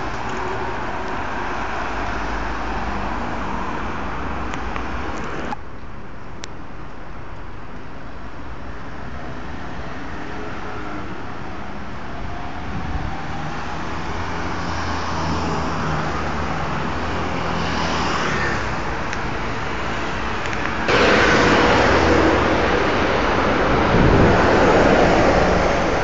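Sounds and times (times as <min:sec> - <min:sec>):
cars passing: 0:00.0 - 0:05.6, 0:09.3 - 0:26.0
loud rush of noise: 0:12.4 - 0:26.0.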